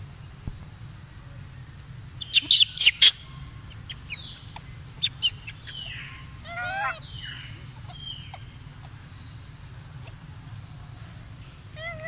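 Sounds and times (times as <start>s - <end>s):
monkey squeals: 2.2s - 4.4s, 5.0s - 8.5s, 11.8s - 12.0s
monkey pitched call: 2.2s - 9.0s, 11.8s - 12.0s
monkeys squeaking: 2.2s - 9.2s, 11.8s - 12.0s.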